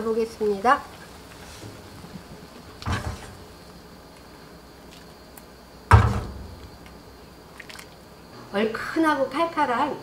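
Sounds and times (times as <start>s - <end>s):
kitchenware clunks: 2.8s - 3.5s, 5.9s - 6.6s.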